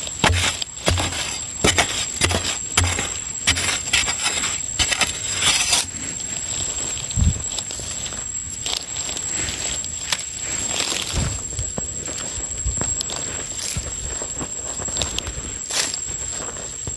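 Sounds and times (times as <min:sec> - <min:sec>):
blade scraping soil: 0:00.0 - 0:07.0
metal blade chopping into earth: 0:00.2 - 0:05.9.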